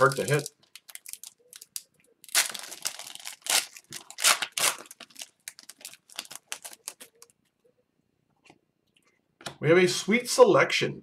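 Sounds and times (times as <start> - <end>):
foil wrapper ripping and crinkling: 0.0 - 7.2.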